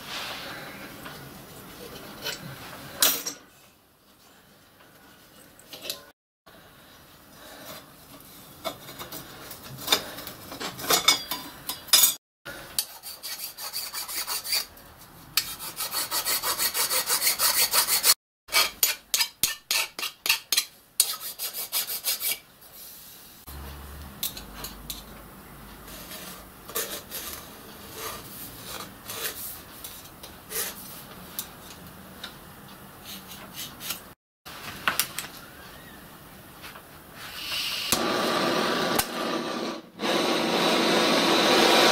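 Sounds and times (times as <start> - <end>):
file and hacksaw rasping metal: 12.8 - 14.7, 15.4 - 22.4.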